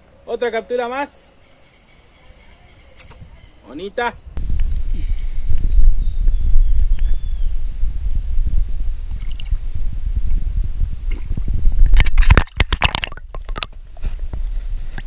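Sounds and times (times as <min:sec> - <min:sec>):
wind rumbling on microphone: 0:02.2 - 0:15.0
water splashing: 0:09.1 - 0:09.6, 0:11.0 - 0:13.8.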